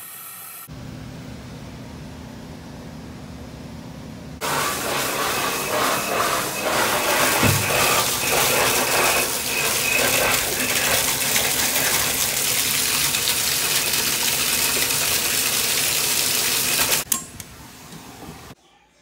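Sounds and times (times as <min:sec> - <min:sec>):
water pouring into bathtub: 0:07.2 - 0:17.1.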